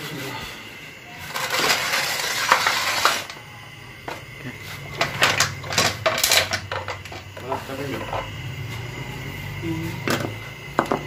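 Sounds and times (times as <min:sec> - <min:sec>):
metal parts scraping: 0:01.3 - 0:03.4, 0:05.0 - 0:07.3.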